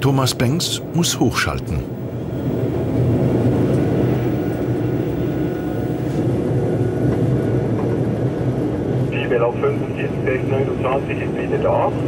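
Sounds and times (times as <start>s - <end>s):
faint high whine: 0.0s - 7.7s
locomotive motor hum and rumble: 0.0s - 12.0s.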